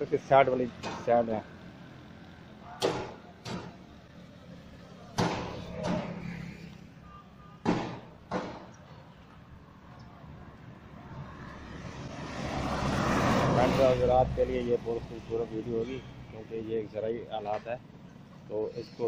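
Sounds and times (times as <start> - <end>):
sharp knocks: 2.8 - 3.8, 5.1 - 6.2, 7.6 - 9.0.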